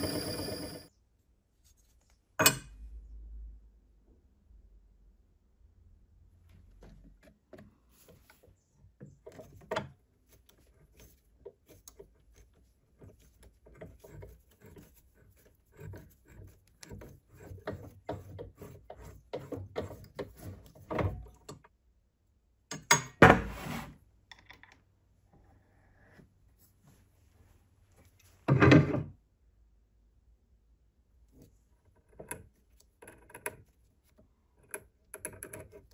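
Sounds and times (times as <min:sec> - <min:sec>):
tap cutting metal creaks and clicks: 0:34.6 - 0:35.9.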